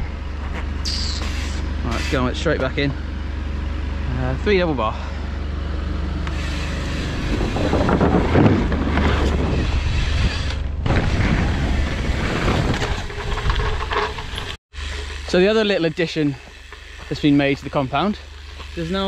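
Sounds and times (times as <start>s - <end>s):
low rumble: 0.0s - 14.6s
wind rushing over microphone: 7.2s - 14.6s.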